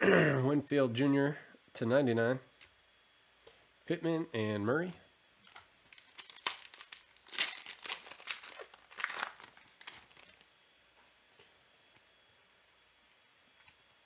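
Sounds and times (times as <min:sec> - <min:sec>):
foil wrapper tearing and crinkling: 0:05.4 - 0:10.5.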